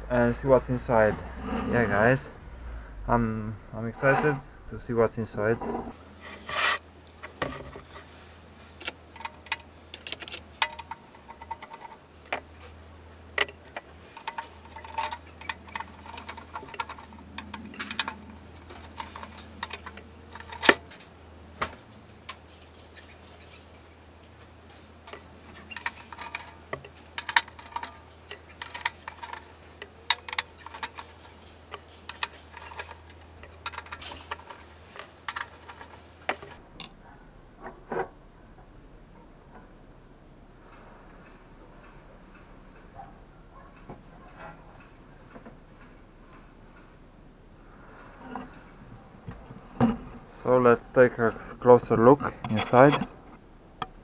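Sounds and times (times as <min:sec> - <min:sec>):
low steady hum: 0:00.0 - 0:54.0
screwdriver clicks on metal plate: 0:13.4 - 0:18.2.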